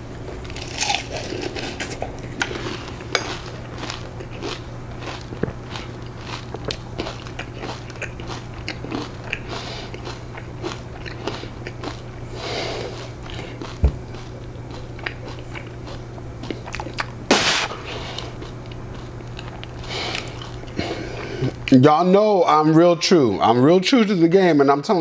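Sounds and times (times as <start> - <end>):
person crunching cereal: 0.3 - 21.6
short loud hiss: 17.3 - 17.8.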